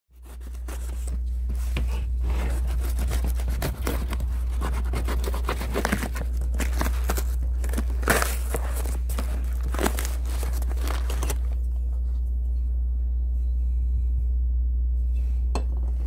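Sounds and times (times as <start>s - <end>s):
low hum: 0.1s - 16.0s
tape and paper tearing: 2.2s - 11.6s
utility knife slicing packing tape: 2.5s - 11.4s.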